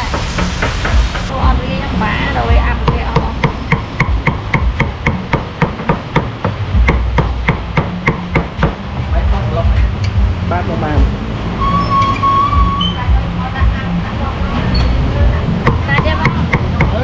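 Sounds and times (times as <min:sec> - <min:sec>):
cleaver chopping on wooden block: 0:03.2 - 0:08.8, 0:15.6 - 0:17.0.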